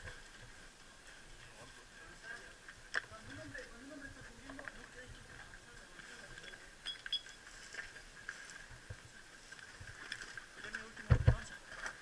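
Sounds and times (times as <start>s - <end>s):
faint steady high tone: 6.4s - 7.4s.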